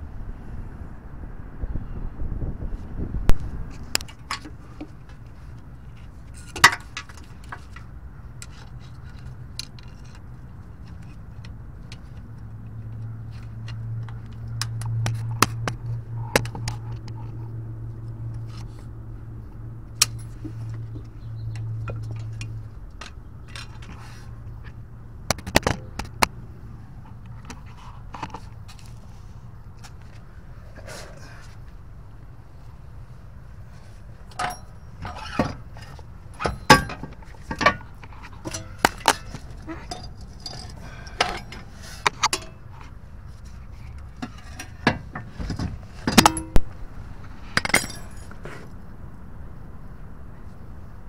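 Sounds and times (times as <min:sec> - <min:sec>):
low steady hum: 0:15.7 - 0:51.0
sharp metal knocks: 0:36.4 - 0:37.8, 0:46.1 - 0:46.7.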